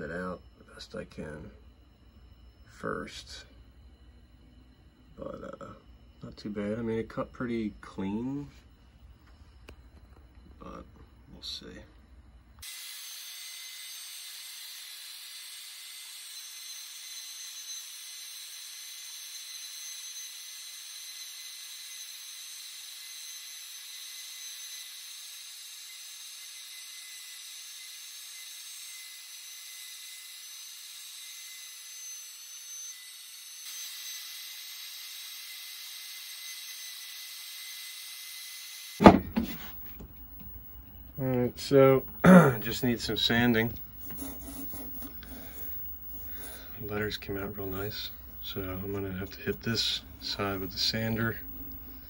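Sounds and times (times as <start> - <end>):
sharp knock: 39.0 - 39.7.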